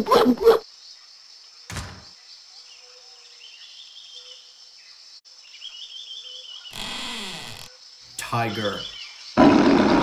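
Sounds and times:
insect chirping trills: 0:00.0 - 0:09.4
insects droning: 0:00.0 - 0:10.0.

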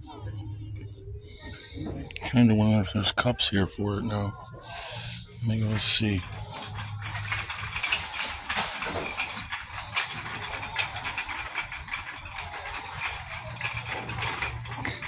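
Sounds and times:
steady low hum: 0:00.0 - 0:15.0
shopping cart rattling: 0:05.3 - 0:15.0.

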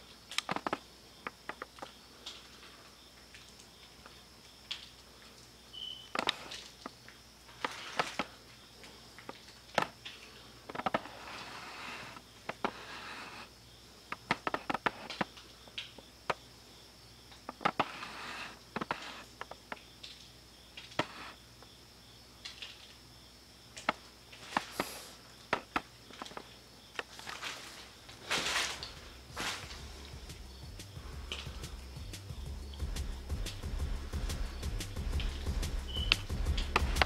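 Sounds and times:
faint steady hum: 0:00.0 - 0:37.0
short rustles: 0:27.0 - 0:31.8.

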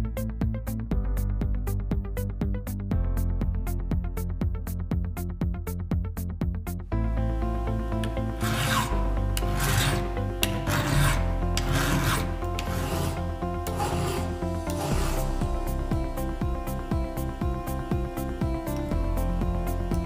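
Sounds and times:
file rasping on metal chain: 0:08.1 - 0:15.4.

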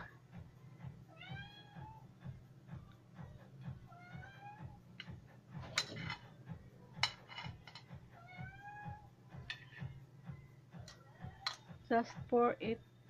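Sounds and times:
cat meowing: 0:01.1 - 0:02.0, 0:03.9 - 0:04.8, 0:08.2 - 0:09.1
metal tongs clacking on a wok: 0:07.0 - 0:07.9, 0:10.8 - 0:11.7.

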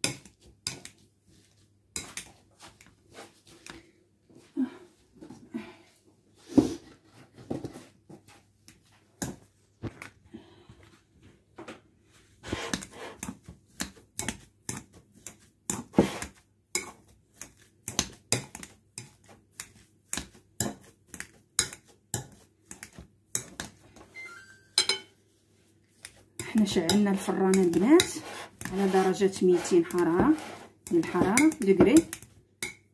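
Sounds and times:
potato masher knocking glass bowl: 0:28.8 - 0:32.8.

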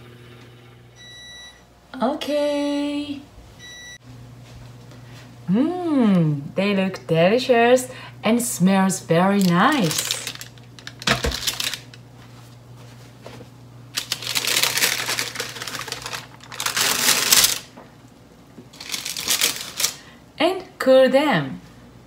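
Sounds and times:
baking paper rustling: 0:09.3 - 0:17.8, 0:18.7 - 0:20.1.

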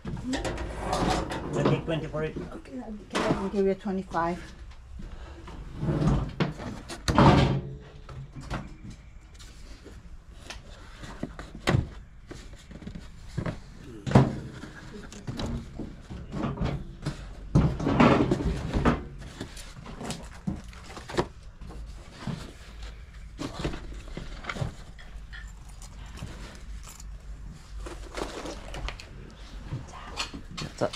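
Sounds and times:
rustling: 0:09.3 - 0:30.9
objects knocking and bumping: 0:11.0 - 0:25.6.

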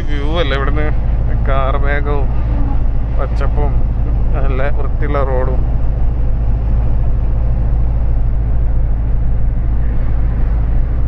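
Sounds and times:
lorry engine and tyres droning: 0:00.0 - 0:11.0.

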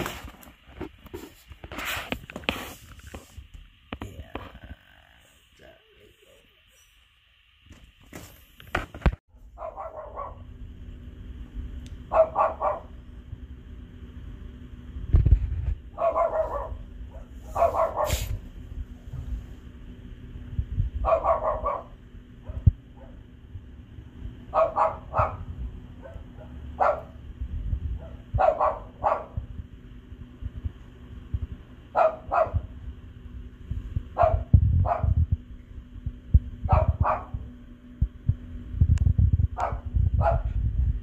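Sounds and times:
dog barking: 0:09.6 - 0:10.5, 0:12.1 - 0:13.0, 0:16.0 - 0:18.4, 0:21.0 - 0:23.2, 0:24.5 - 0:27.2, 0:28.0 - 0:29.4, 0:31.9 - 0:32.7, 0:34.2 - 0:35.2, 0:36.7 - 0:37.4, 0:39.6 - 0:40.5.

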